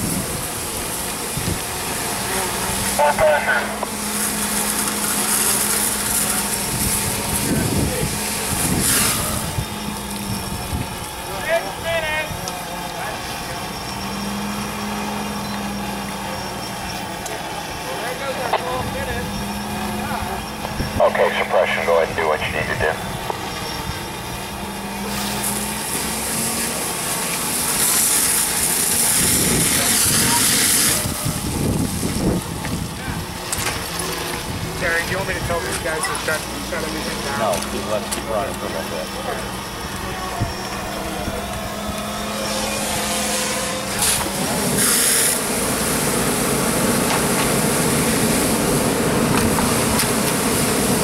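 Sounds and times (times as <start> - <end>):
low engine hum: 0.0 - 51.0
hose spraying water: 0.1 - 10.2, 25.0 - 32.8, 42.0 - 51.0.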